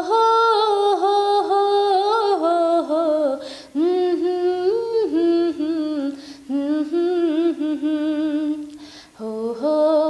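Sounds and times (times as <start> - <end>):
woman singing wordless melody: 0.0 - 10.0
woman breathing in: 3.4 - 3.8, 6.2 - 6.5, 8.8 - 9.2.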